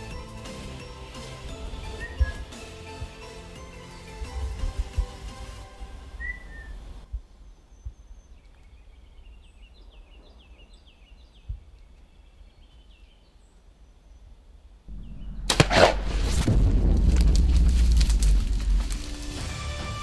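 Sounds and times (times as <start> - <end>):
songbird rising chirps: 1.5 - 4.5, 6.0 - 14.3, 14.9 - 15.5
low rumble: 14.9 - 19.4.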